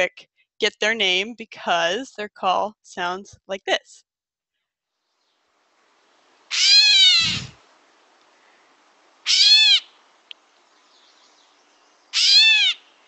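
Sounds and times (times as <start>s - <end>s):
bird mewing call: 6.5s - 7.6s, 9.2s - 10.0s, 10.8s - 13.0s.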